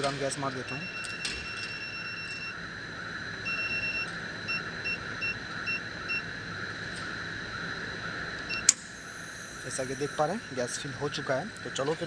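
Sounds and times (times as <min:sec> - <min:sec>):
machine hum: 0:00.0 - 0:12.0
electronic keypad beeps: 0:00.5 - 0:02.6, 0:03.4 - 0:06.2.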